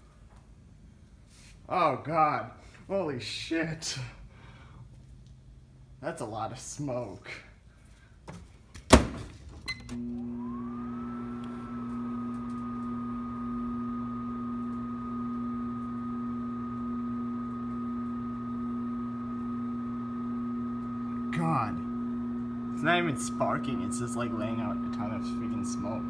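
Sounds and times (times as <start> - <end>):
microwave oven humming: 9.7 - 26.0
fan whine: 9.9 - 26.0.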